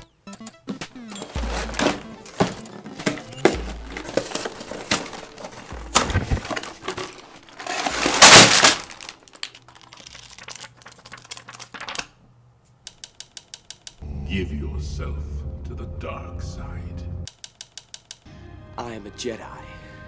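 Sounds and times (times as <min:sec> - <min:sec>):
cardboard box being opened: 0:01.2 - 0:09.1
light plastic rustling: 0:01.2 - 0:12.2
plastic bags crinkling: 0:01.2 - 0:12.2
sharp clicks: 0:12.8 - 0:14.0, 0:17.3 - 0:18.3.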